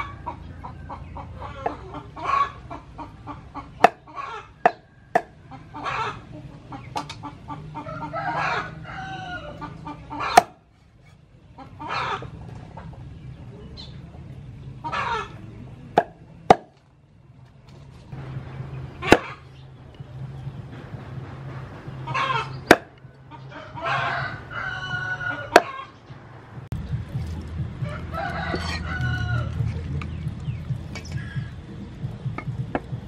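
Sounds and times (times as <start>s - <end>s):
chickens clucking: 0.0s - 33.0s
cleaver chopping on wooden board: 3.8s - 5.4s, 10.3s - 10.6s, 16.0s - 16.8s, 22.7s - 22.9s
rooster crowing: 7.7s - 10.4s, 23.5s - 25.9s, 27.8s - 29.8s.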